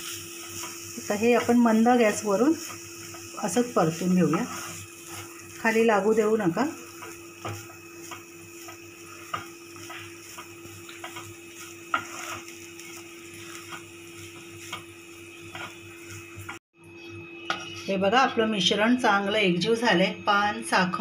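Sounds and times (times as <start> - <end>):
wooden spatula scraping a pan: 0.0 - 16.6.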